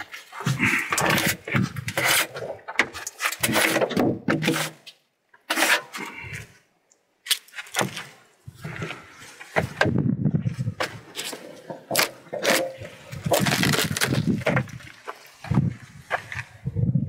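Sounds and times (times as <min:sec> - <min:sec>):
log knocking and scraping on steel: 0:00.4 - 0:06.1, 0:07.6 - 0:16.4.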